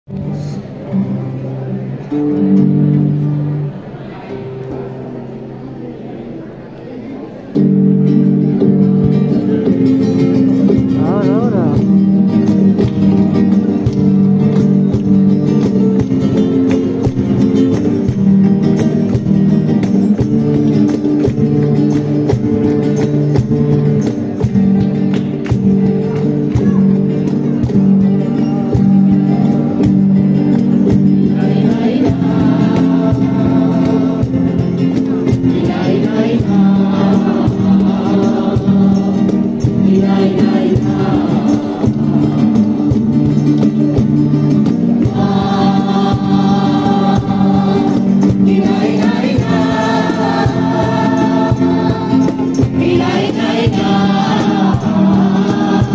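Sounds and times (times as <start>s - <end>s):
guitars strumming: 0.1s - 55.9s
group singing a carol: 7.6s - 55.9s
rhythmic hand clapping: 9.0s - 55.9s
group hand clapping: 11.0s - 28.3s.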